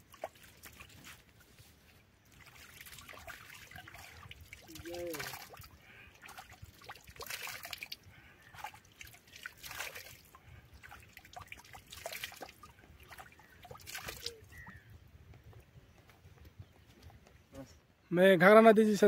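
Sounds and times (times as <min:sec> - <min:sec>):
water dribbling: 0:00.0 - 0:01.3, 0:02.2 - 0:14.9
hand splashing water: 0:02.3 - 0:14.5.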